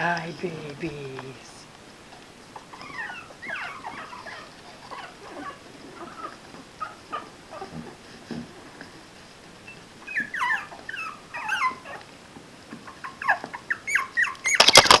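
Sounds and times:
puppies whimpering and squealing: 2.5 - 8.7, 9.6 - 12.1, 12.8 - 15.0.

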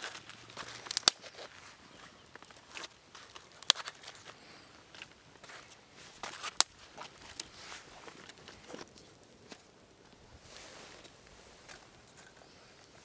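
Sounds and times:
twigs cracking: 0.0 - 10.3
sticks rustling and scraping: 0.0 - 13.0.

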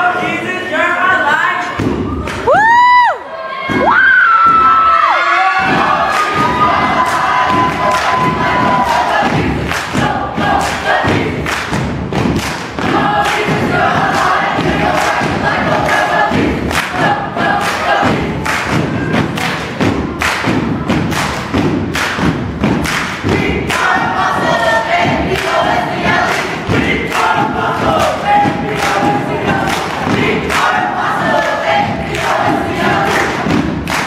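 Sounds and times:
heavy thumping beat: 1.7 - 2.6, 5.6 - 34.0
group chanting in unison: 5.1 - 20.6, 22.8 - 34.0.

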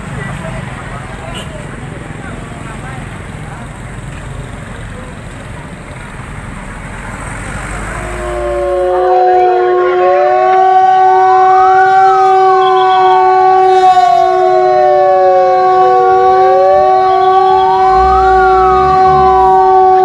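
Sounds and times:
siren wailing: 7.9 - 20.0.

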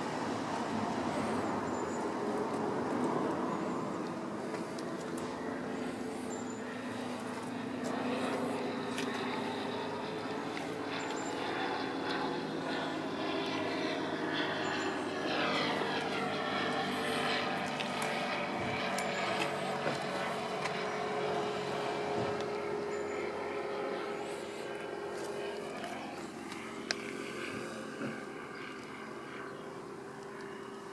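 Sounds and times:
engine hum: 0.0 - 30.9.

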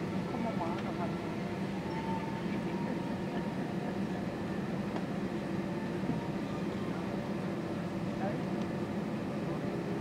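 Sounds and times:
aircraft engines idling: 0.0 - 10.0.

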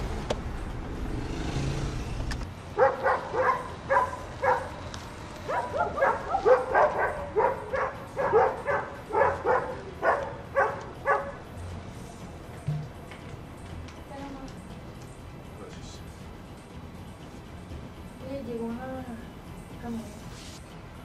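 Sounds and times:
vehicle engine and road rumble: 0.0 - 21.0
dog barking: 2.8 - 4.8, 5.5 - 11.4.

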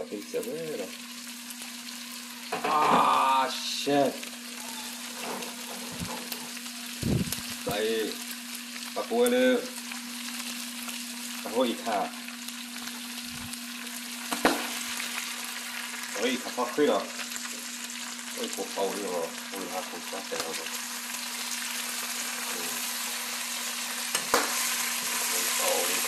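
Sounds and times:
meat sizzling in a frying pan: 0.0 - 26.0
steady low hum: 2.3 - 16.7.

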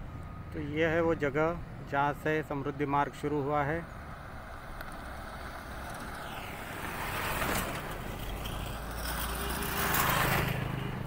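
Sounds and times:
motorcycle approaching: 4.0 - 11.0.

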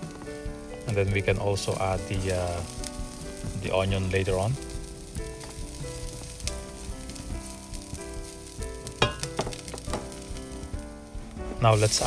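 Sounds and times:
garlic sizzling in oil: 0.0 - 12.0
soft background music: 0.0 - 12.0
spatula stirring in pan: 4.6 - 10.8.

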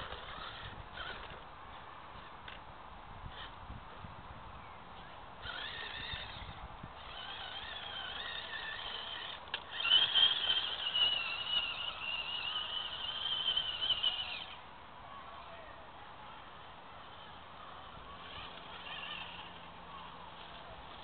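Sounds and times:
electric motor and gears whining: 0.0 - 1.4, 5.4 - 14.6, 17.0 - 21.0.

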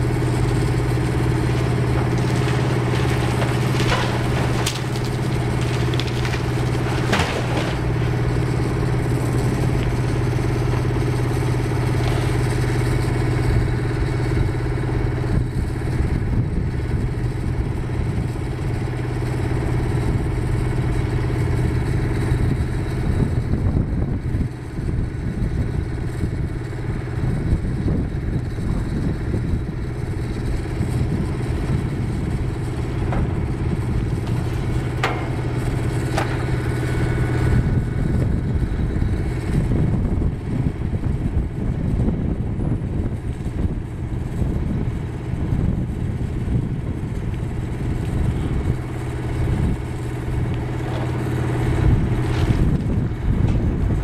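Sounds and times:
diesel engine running: 0.0 - 54.0
sharp knocks: 32.7 - 37.5.

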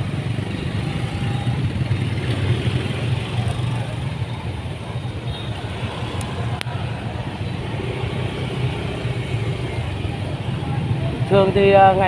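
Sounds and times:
motorbike and car engines: 0.0 - 12.0.

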